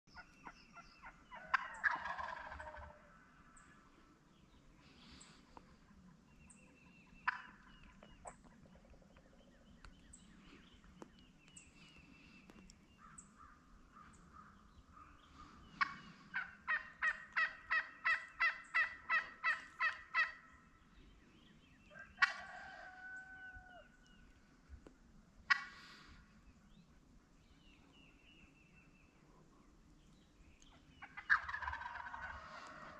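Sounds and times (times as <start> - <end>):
turkey gobbler calling: 0.1 - 3.4, 6.6 - 9.0, 13.1 - 20.5, 21.9 - 23.8, 25.5 - 26.1, 30.7 - 32.9
turkey hen yelping: 0.4 - 3.1, 7.2 - 7.7, 15.8 - 20.4, 22.0 - 23.8, 31.0 - 32.9.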